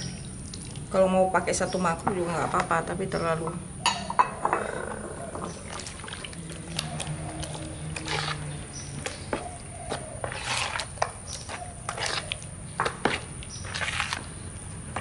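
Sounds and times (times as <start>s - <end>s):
wet squelching and sloshing: 0.0s - 2.8s, 4.9s - 15.0s
spoon scraping and clicking: 6.6s - 14.3s.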